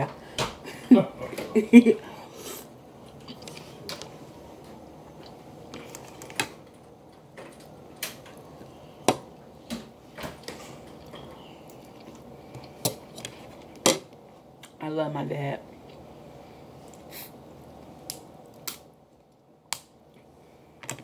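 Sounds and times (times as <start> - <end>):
quiet chewing: 3.0 - 6.5, 10.4 - 14.8.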